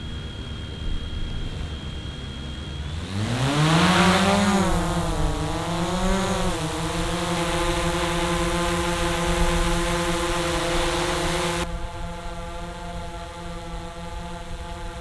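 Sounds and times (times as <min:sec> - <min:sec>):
drone motors humming: 0:00.0 - 0:15.0.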